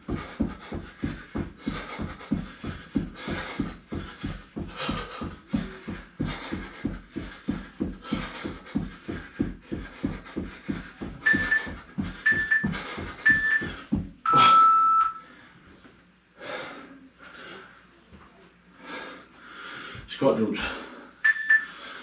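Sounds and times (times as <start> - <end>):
feet thudding on floor: 0.0 - 14.5
hard breathing: 0.0 - 17.9, 18.7 - 22.0.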